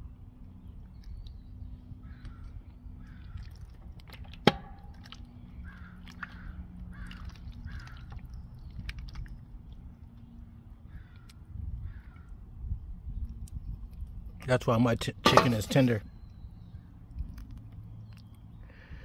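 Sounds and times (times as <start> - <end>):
low steady rumble: 0.0 - 19.0
crows cawing: 2.0 - 3.6, 5.6 - 8.2, 10.9 - 12.3.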